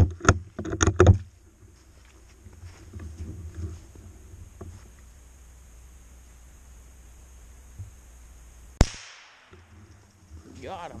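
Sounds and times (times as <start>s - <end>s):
rifle shot with echo: 8.8s - 9.7s.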